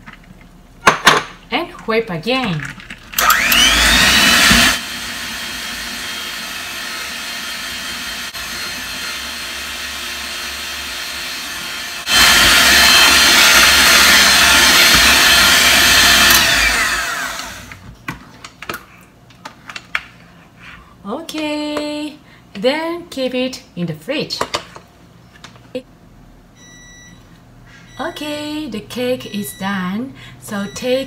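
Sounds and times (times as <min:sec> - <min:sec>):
electric mixer whipping cream: 0:03.2 - 0:17.8.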